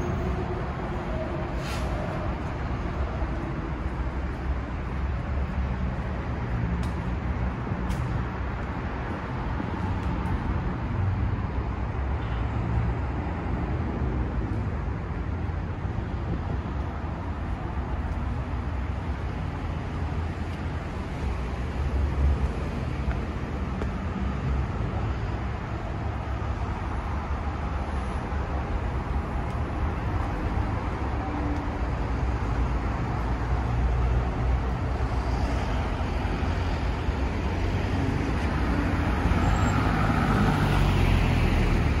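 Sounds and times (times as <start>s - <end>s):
road traffic rumble: 0.0s - 42.0s.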